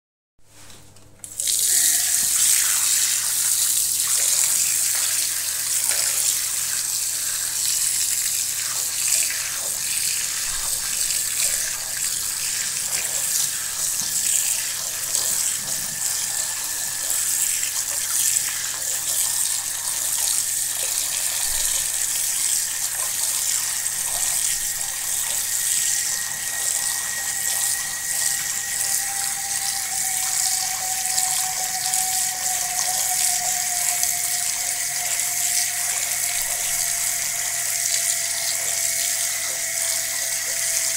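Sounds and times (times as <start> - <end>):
tap water running into basin: 1.2 - 40.9
faint thin whistle: 24.3 - 40.9.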